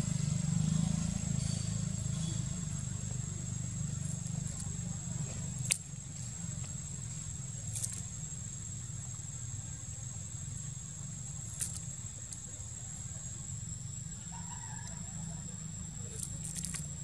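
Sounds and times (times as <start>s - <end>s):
high-pitched insect drone: 0.1s - 17.0s
faint crackles: 4.0s - 8.6s, 16.0s - 17.0s.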